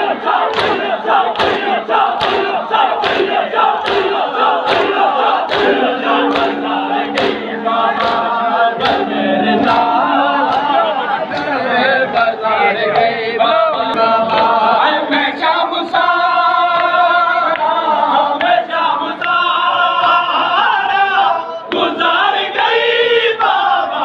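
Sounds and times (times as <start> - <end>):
lead reciter: 0.0 - 24.0
men singing a lament in unison: 0.0 - 24.0.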